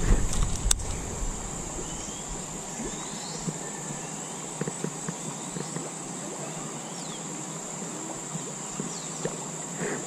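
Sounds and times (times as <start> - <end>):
high-pitched insect drone: 0.8 - 10.0
bird chirps: 1.8 - 7.4
faint ticks: 8.3 - 10.0.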